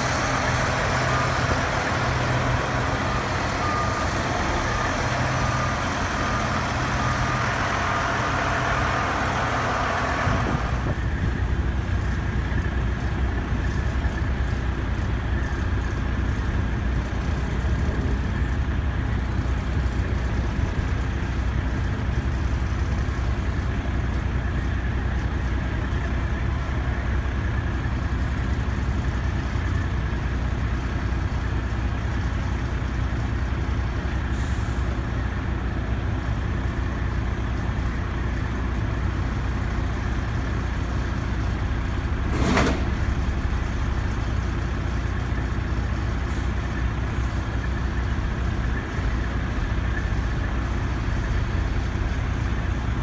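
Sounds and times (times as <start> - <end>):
diesel truck engines idling: 0.0 - 53.0
air brake hiss: 34.3 - 35.0.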